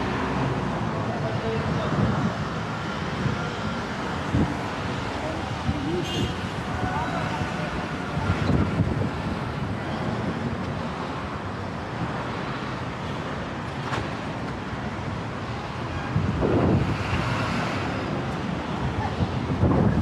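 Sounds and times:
wind buffeting microphone: 0:00.0 - 0:11.5, 0:16.0 - 0:20.0
highway traffic: 0:00.0 - 0:20.0.

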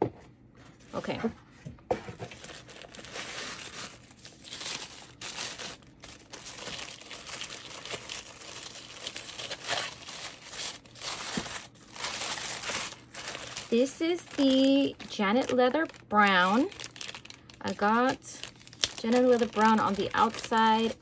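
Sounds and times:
tissue paper crinkling: 0:02.1 - 0:21.0.

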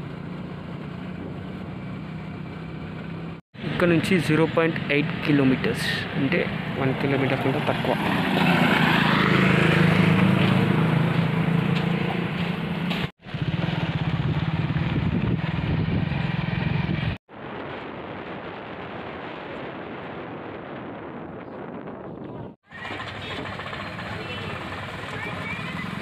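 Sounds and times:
motorcycle engine running: 0:00.0 - 0:03.8, 0:09.0 - 0:17.2, 0:22.7 - 0:26.0.

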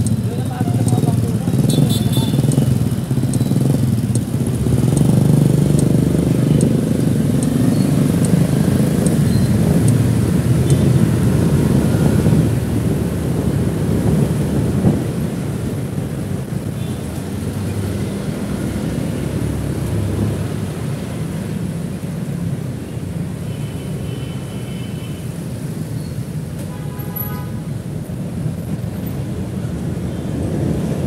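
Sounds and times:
motorcycle engine rumble: 0:00.0 - 0:22.9
wind buffeting microphone: 0:02.5 - 0:16.8.

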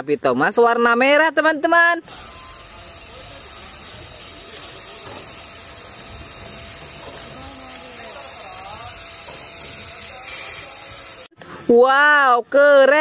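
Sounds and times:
steam locomotive hissing: 0:02.0 - 0:11.6.

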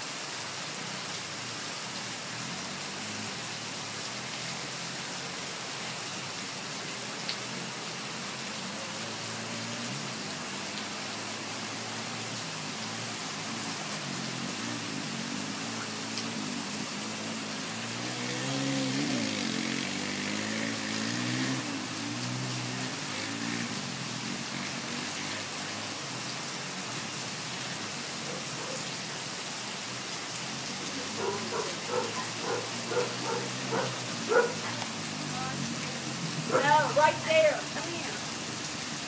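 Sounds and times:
heavy rain: 0:00.0 - 0:39.0
distant atv engine revving: 0:09.1 - 0:26.0, 0:30.9 - 0:37.2.

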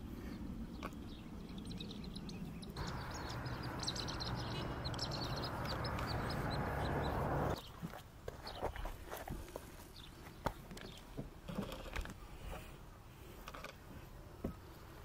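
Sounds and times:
wind rumbling on microphone: 0:00.0 - 0:07.6
small birds chirping: 0:00.0 - 0:11.2.

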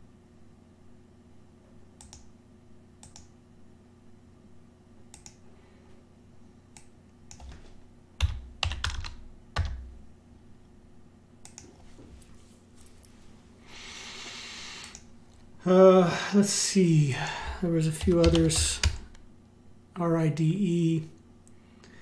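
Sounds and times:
mouse clicks: 0:02.0 - 0:02.3, 0:03.0 - 0:03.3, 0:05.1 - 0:05.4, 0:11.4 - 0:11.7, 0:14.8 - 0:15.1
keyboard typing: 0:06.8 - 0:09.9, 0:11.4 - 0:11.8, 0:17.6 - 0:19.2.

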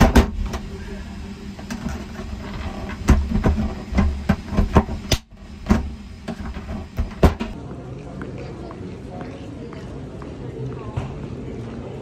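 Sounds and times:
aircraft low rumble: 0:00.0 - 0:08.2
sharp knocks and rattles: 0:01.7 - 0:07.6.

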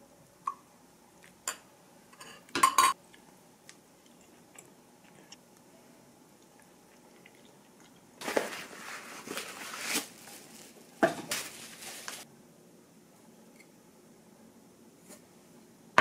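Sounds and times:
packaging rustling: 0:08.2 - 0:12.2.

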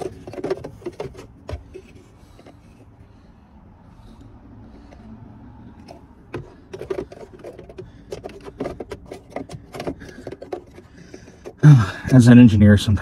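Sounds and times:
hand tool clicking and scraping: 0:00.0 - 0:02.9, 0:05.7 - 0:12.4.

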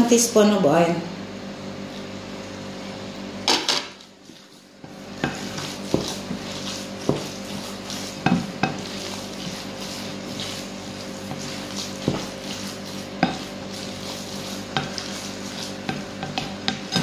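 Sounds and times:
steady low hum: 0:00.0 - 0:17.0
hands squishing wet mixture: 0:04.0 - 0:17.0.

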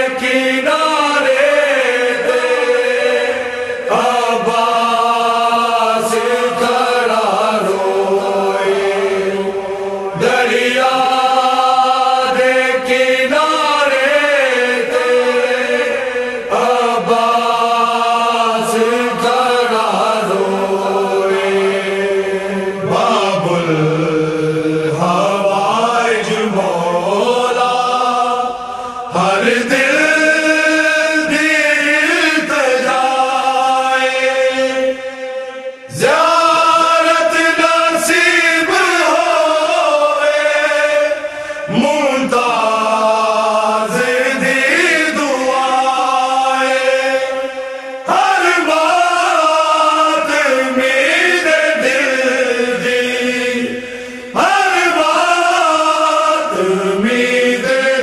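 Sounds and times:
person chanting melodically: 0:00.0 - 0:58.0.

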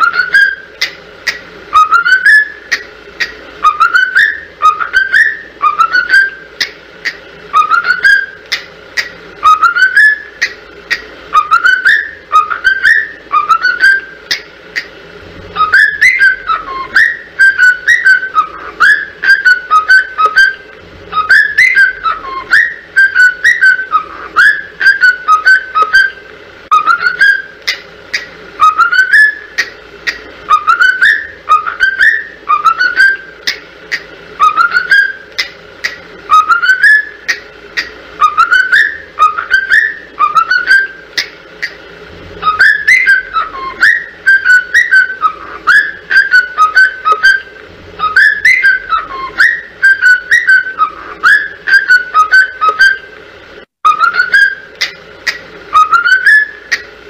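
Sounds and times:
whistled tune: 0:00.0 - 0:00.7, 0:01.7 - 0:02.8, 0:03.6 - 0:06.5, 0:07.5 - 0:08.6, 0:09.4 - 0:10.5, 0:11.3 - 0:14.2, 0:15.6 - 0:27.6, 0:28.6 - 0:29.6, 0:30.5 - 0:33.3, 0:34.4 - 0:35.4, 0:36.3 - 0:37.3, 0:38.2 - 0:41.3, 0:42.4 - 0:53.1, 0:53.8 - 0:55.0, 0:55.7 - 0:56.8.

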